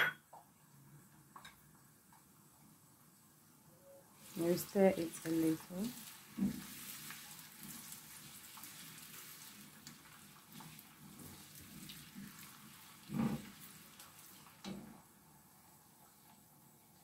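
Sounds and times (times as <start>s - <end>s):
onions sizzling in a pan: 4.1s - 17.0s
spatula scraping a pan: 5.9s - 14.5s.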